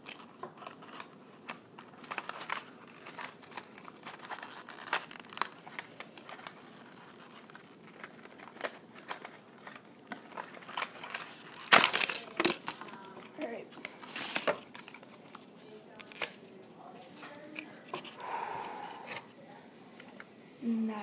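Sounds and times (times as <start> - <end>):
packaging clicks: 0.0 - 16.4
packaging crinkling: 0.0 - 19.3.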